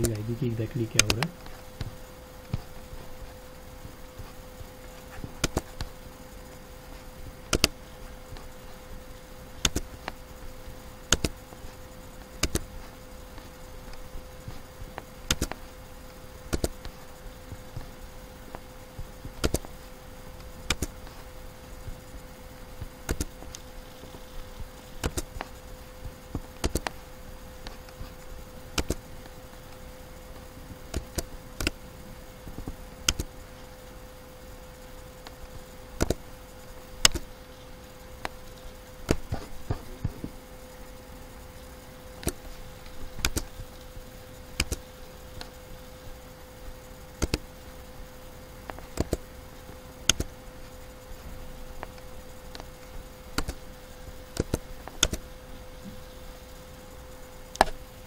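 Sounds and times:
faint steady hum: 0.0s - 58.0s
computer mouse clicks: 1.0s - 3.2s, 5.0s - 6.0s, 7.5s - 8.5s, 9.6s - 10.2s, 11.1s - 15.6s, 16.4s - 17.0s, 17.7s - 19.8s, 20.4s - 21.2s, 22.8s - 24.2s, 24.9s - 27.0s, 27.6s - 29.1s, 30.9s - 31.8s, 32.5s - 33.4s, 36.0s - 36.3s, 37.0s - 37.3s, 42.2s - 43.7s, 44.6s - 45.6s, 47.2s - 47.5s, 48.6s - 49.3s, 50.0s - 50.4s, 51.8s - 53.7s, 54.3s - 55.3s, 57.5s - 57.8s.

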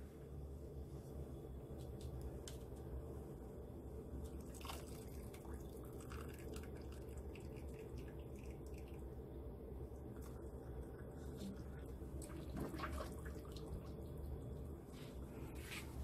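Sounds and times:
steady low hum: 0.0s - 16.0s
water dripping and trickling into pot: 4.3s - 14.8s.

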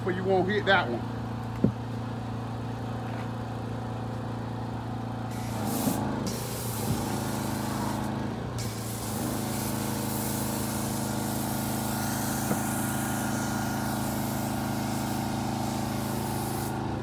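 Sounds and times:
engine running steadily: 0.0s - 17.0s
foam cannon hissing: 5.3s - 17.0s.

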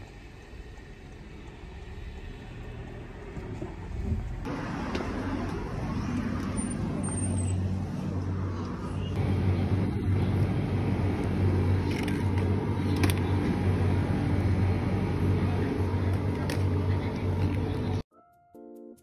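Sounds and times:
low rumble and hum: 3.9s - 18.0s.

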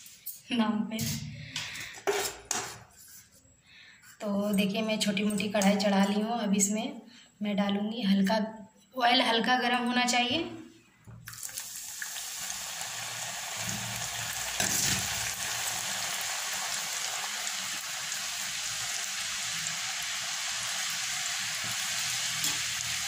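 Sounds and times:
dough sizzling in hot oil: 11.3s - 23.0s.

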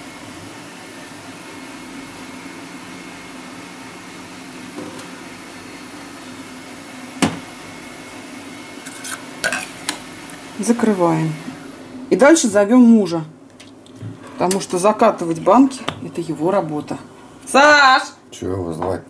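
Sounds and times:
kitchen appliance humming: 0.0s - 19.0s
kitchenware clinking: 8.9s - 10.0s.

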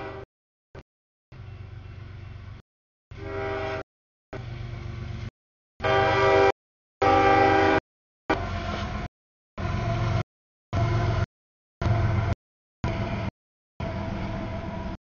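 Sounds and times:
train horn blasts: 0.0s - 0.3s, 3.1s - 3.9s, 5.8s - 10.0s.

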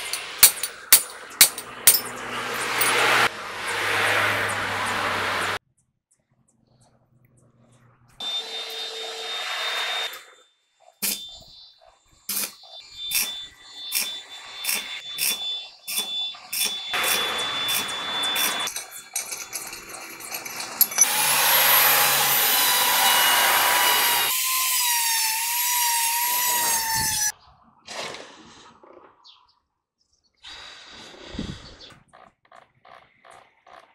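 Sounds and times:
sharp metal knocks: 0.0s - 3.3s
grinder cutting steel: 0.0s - 5.6s, 8.2s - 10.4s, 11.0s - 11.4s, 12.3s - 27.3s
welding arc crackling: 11.0s - 11.2s, 12.3s - 18.6s.

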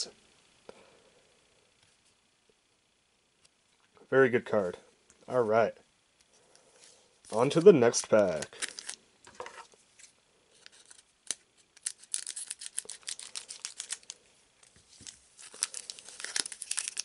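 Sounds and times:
foil wrapper crackling: 7.3s - 9.0s, 10.6s - 14.2s, 14.9s - 17.0s.

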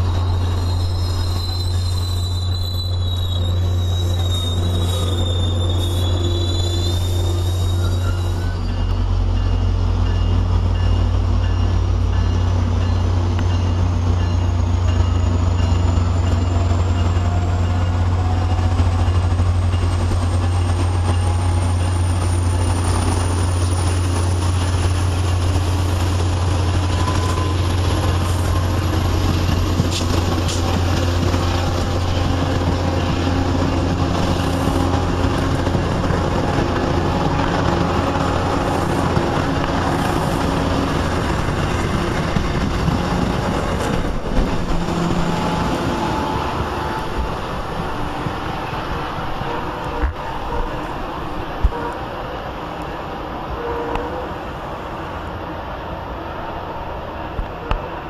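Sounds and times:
train engine and rail rumble: 0.0s - 58.0s
train wheel clicks: 28.1s - 36.1s.

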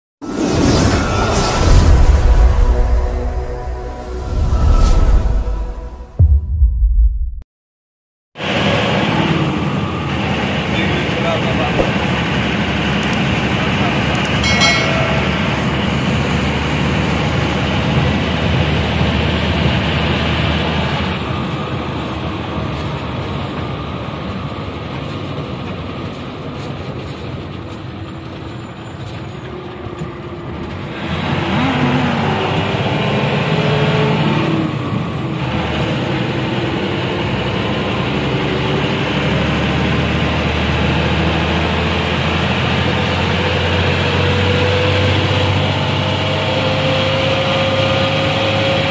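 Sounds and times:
bus engine: 8.4s - 14.4s, 15.8s - 48.9s
road noise: 8.4s - 48.9s.

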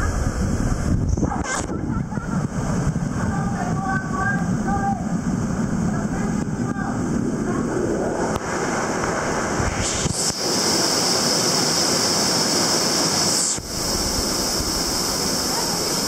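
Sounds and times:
waterfall rushing: 6.5s - 16.0s.

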